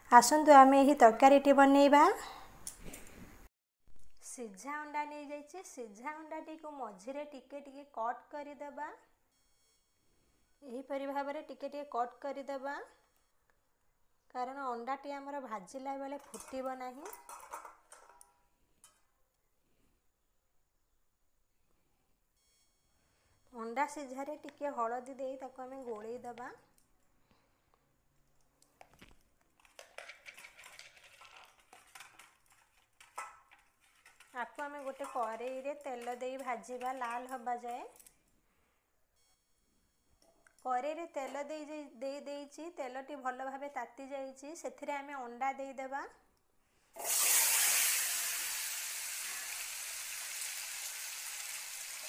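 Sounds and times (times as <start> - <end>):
eggs clicking in a metal bowl: 29.6 - 37.8
eggs sizzling in hot oil: 47.0 - 52.0.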